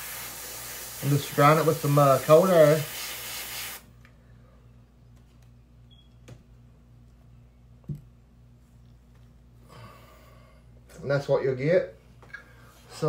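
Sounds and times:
airbrush hissing: 0.0s - 3.9s
low steady hum: 3.9s - 13.0s.

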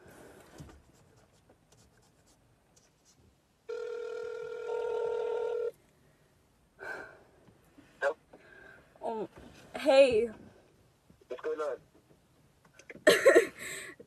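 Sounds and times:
phone ringback tone: 3.7s - 5.7s.

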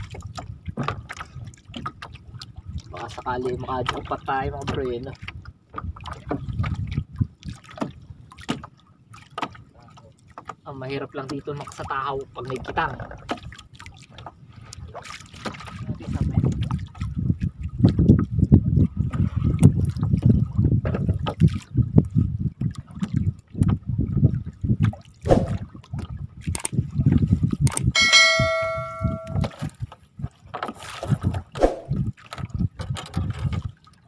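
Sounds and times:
wind rumbling on microphone: 0.0s - 8.4s, 12.4s - 34.0s
net and floats knocking on hull: 0.4s - 2.1s, 28.0s - 31.6s
water splashing: 11.6s - 17.1s, 24.9s - 26.1s
notification bell chime: 28.0s - 29.5s.

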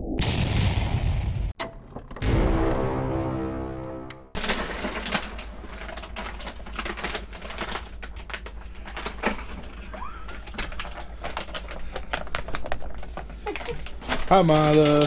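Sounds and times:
plastic packages rustling and knocking: 4.4s - 15.0s.

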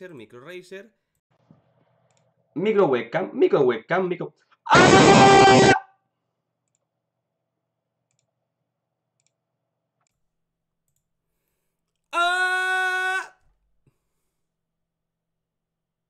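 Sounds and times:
man shouting: 4.7s - 5.9s, 12.2s - 13.4s.

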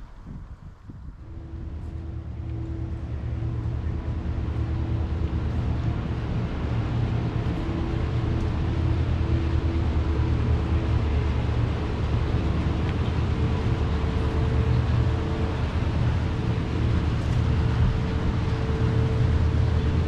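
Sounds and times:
low mechanical drone: 0.0s - 20.0s.

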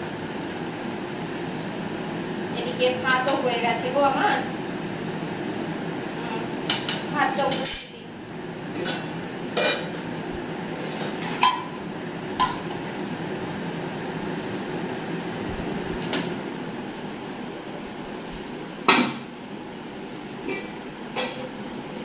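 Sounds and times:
steel pots and lids clinking: 8.8s - 10.0s, 11.0s - 11.8s, 20.4s - 21.5s.

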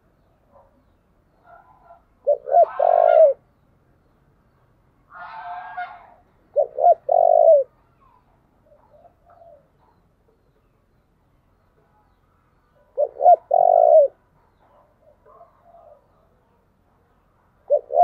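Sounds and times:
dove cooing: 1.4s - 3.4s, 5.2s - 7.8s, 8.6s - 10.0s, 12.8s - 16.3s, 17.6s - 18.0s.

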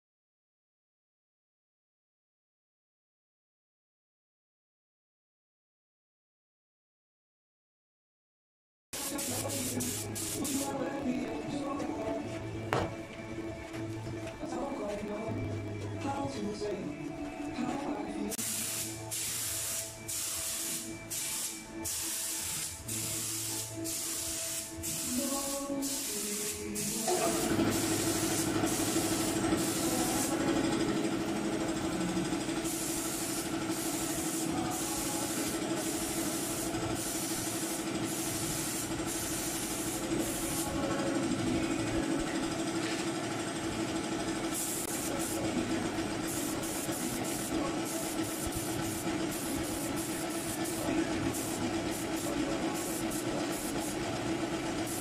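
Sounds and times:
spray gun hissing: 9.0s - 10.8s, 18.4s - 30.5s, 32.6s - 40.8s, 44.5s - 45.5s, 46.2s - 54.0s
air compressor humming: 9.0s - 55.0s.

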